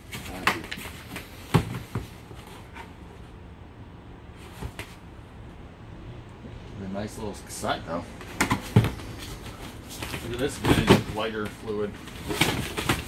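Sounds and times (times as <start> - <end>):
plastic cases knocking: 10.0 - 11.2, 12.2 - 13.0.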